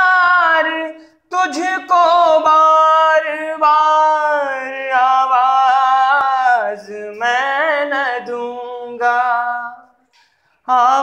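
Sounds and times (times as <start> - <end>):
man singing unaccompanied: 0.0 - 11.0.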